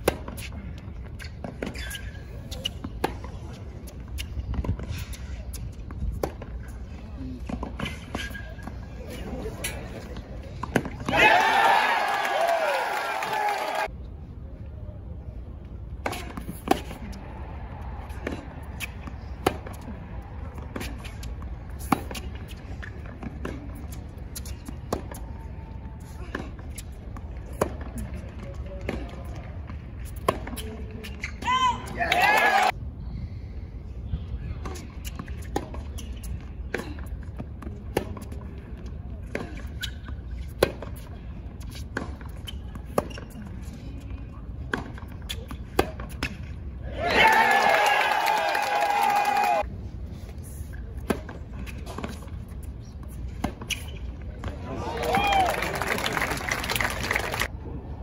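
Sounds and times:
tennis ball bouncing: 6.1 - 6.6, 9.5 - 11.2, 16.0 - 17.2, 18.0 - 31.4, 34.6 - 43.4, 44.1 - 46.5, 51.0 - 54.6
racket hitting tennis ball: 9.5 - 11.3, 16.0 - 17.2, 18.0 - 25.3, 26.0 - 29.4, 30.0 - 32.5, 34.6 - 38.5, 39.2 - 43.4, 44.6 - 46.6, 51.0 - 54.6.

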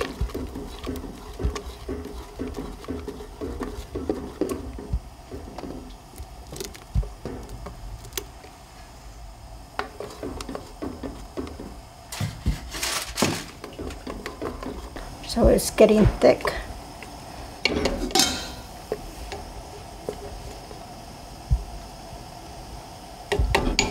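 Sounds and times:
sticks sloshing thick batter: 0.0 - 5.6.

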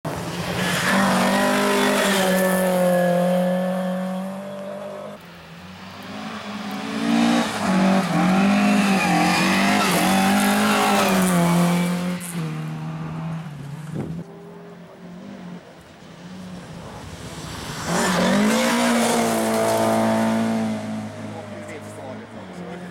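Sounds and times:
rally car engine revving: 6.0 - 15.7, 16.6 - 22.9.

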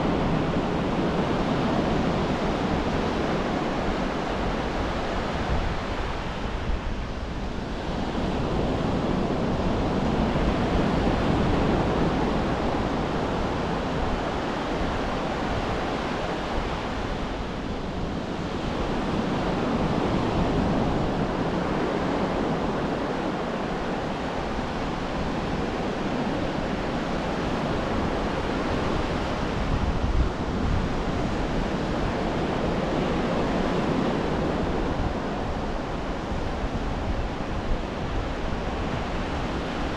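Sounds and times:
ocean surf on a beach: 0.0 - 39.9
wind rumble on microphone: 0.0 - 39.9.

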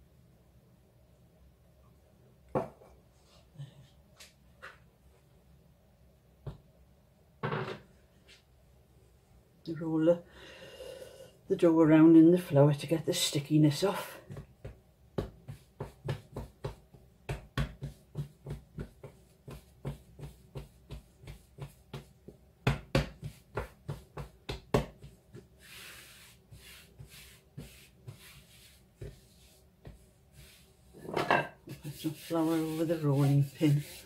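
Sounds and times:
hand rubbing flour on worktop: 13.7 - 31.0, 31.6 - 34.0
hands patting dough: 14.2 - 30.9, 31.6 - 34.0.

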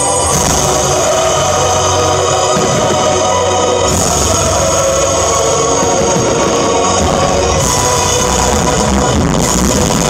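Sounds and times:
loud music: 0.0 - 10.0.

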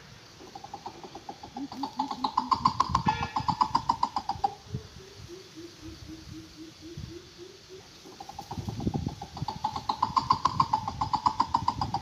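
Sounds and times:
bird deep hooting call: 0.4 - 8.4.

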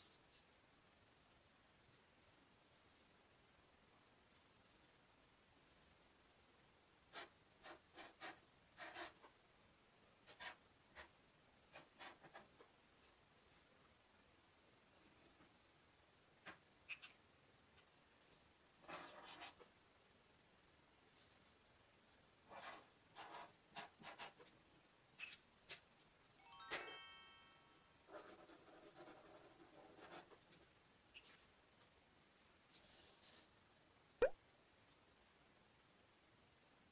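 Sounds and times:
marker scratching on paper: 7.1 - 9.3, 10.2 - 11.1, 11.7 - 12.7, 18.8 - 19.7, 22.5 - 24.5, 28.1 - 31.4
bright ding chime: 26.4 - 27.9.

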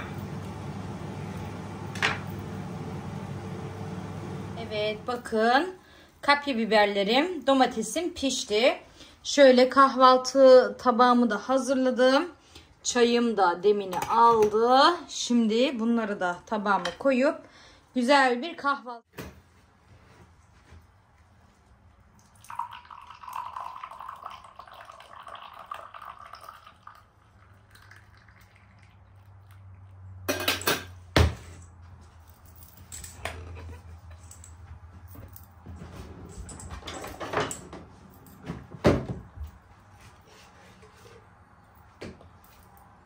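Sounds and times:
tea pouring into glass cup: 22.2 - 29.6.

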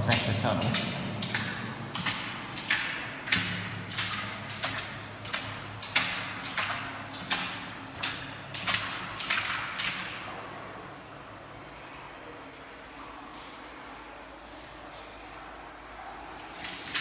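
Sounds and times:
footsteps echoing in a concrete tunnel: 0.0 - 10.6.

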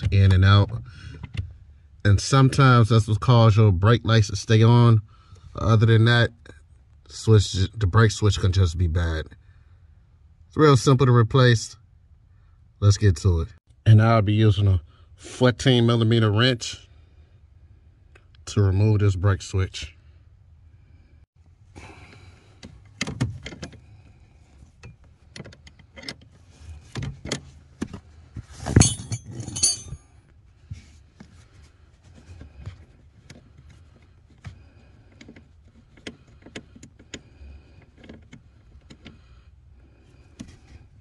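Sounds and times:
wrench clinking on metal: 28.7 - 30.1.

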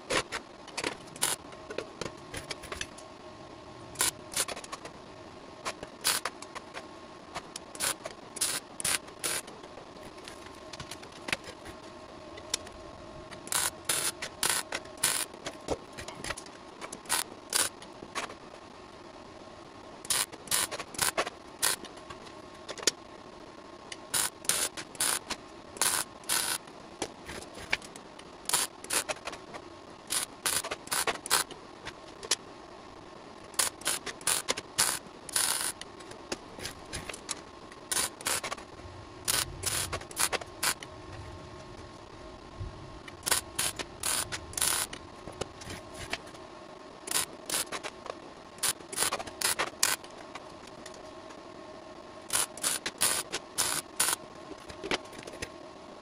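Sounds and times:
welding arc crackling: 1.1 - 1.5, 3.9 - 4.8, 5.6 - 6.8, 7.4 - 11.8, 13.3 - 18.4, 20.0 - 22.0, 24.0 - 31.6, 33.4 - 40.9, 43.1 - 45.0, 47.1 - 47.9, 48.6 - 50.3, 52.3 - 54.2.

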